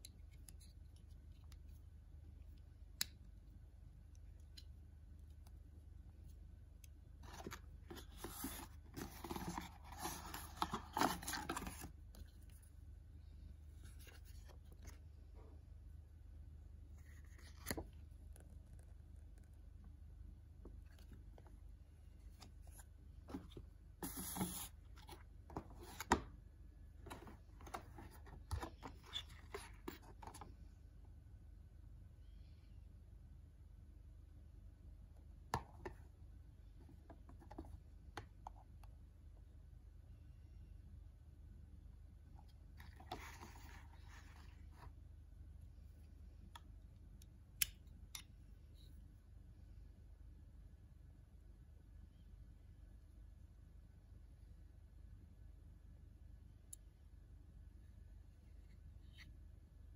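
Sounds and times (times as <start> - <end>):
paper pages rustling: 7.2 - 11.9.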